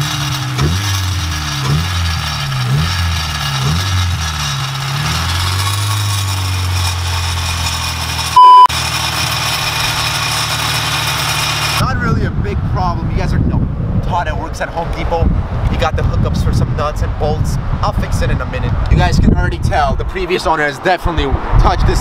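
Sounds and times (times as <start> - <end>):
car engine running: 0.0 - 11.8
loud short one-tone bleep: 8.4 - 8.7.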